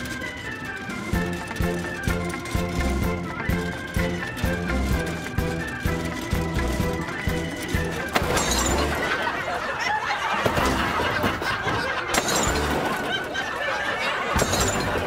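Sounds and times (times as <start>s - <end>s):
crash with shattering glass: 8.2s - 9.1s, 12.2s - 13.0s, 14.4s - 15.0s.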